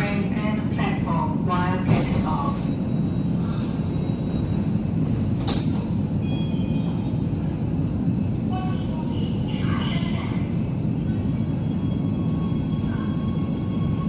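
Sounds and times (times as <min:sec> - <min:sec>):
metro train rumbling: 0:00.0 - 0:14.0
train doors opening: 0:01.7 - 0:08.0
high brake squeal: 0:02.6 - 0:04.8.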